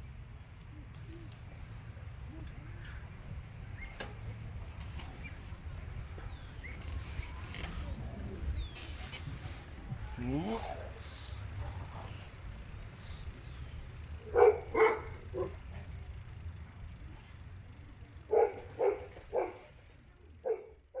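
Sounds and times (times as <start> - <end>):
animal barking: 14.2 - 15.7, 18.3 - 19.8, 20.4 - 21.0.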